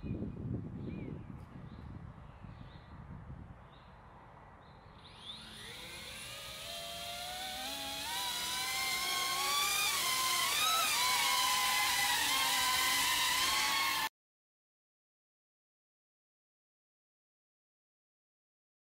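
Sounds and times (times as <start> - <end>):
drone motors whining: 5.0 - 14.1.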